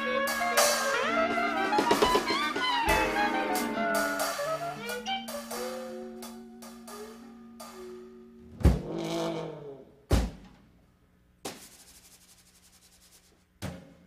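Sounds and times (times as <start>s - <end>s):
orchestral cartoon music: 0.0s - 8.1s
fast percussion rattle: 11.5s - 13.4s.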